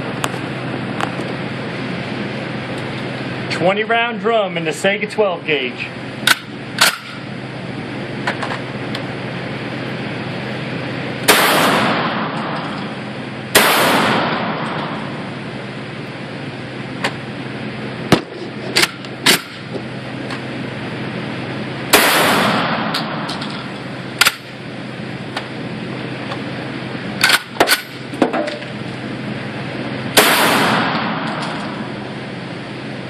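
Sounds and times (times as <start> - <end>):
low hum: 0.0 - 33.0
loud shotgun shots with echo: 11.3 - 12.6, 13.5 - 15.0, 21.9 - 23.3, 30.2 - 31.3
sharp gunshot reports: 11.3 - 12.6, 13.5 - 15.0, 21.9 - 23.3, 30.2 - 31.9.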